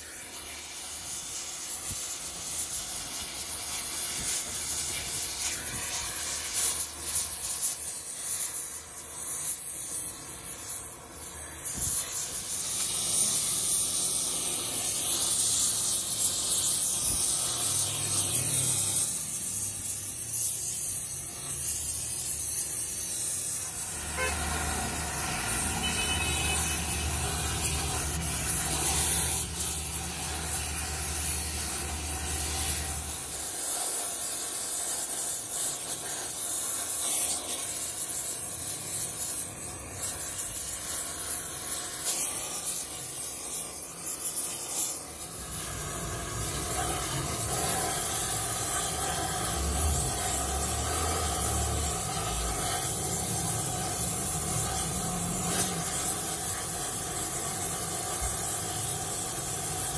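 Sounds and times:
gas torch flame hissing: 0.0s - 59.9s.

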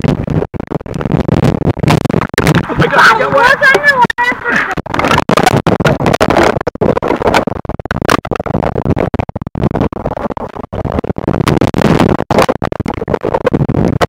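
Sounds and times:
water rushing over microphone: 0.0s - 14.0s.

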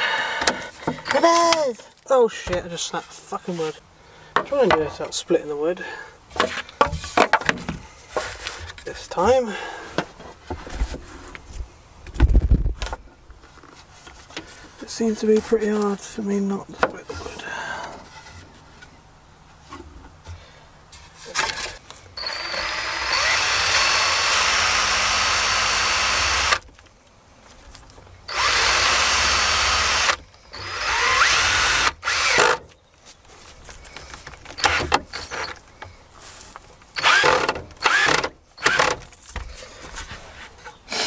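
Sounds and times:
power drill driving screw into wood: 21.4s - 26.6s, 28.3s - 32.6s, 34.6s - 35.6s, 37.0s - 39.0s.

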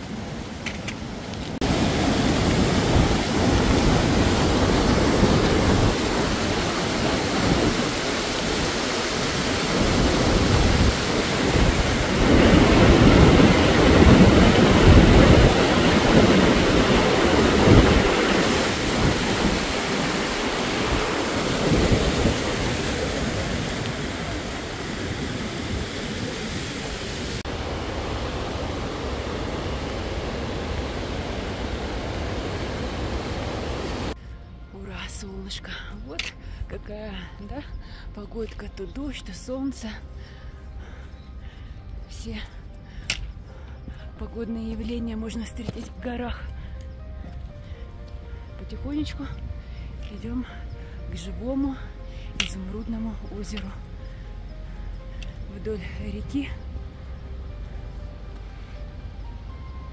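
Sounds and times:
mountain river rushing: 0.0s - 34.2s
wind buffeting microphone: 1.5s - 34.2s.

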